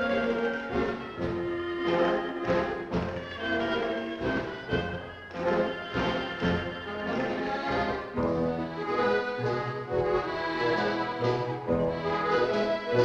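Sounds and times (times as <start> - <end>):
orchestral dance music: 0.0 - 13.0.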